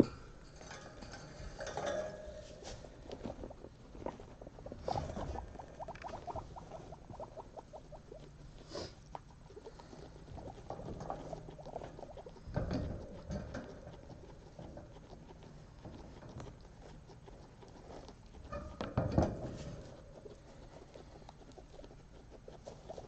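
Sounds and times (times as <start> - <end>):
guinea pigs chewing hay: 0.0 - 23.0
rustling in hay and bedding: 1.2 - 7.5.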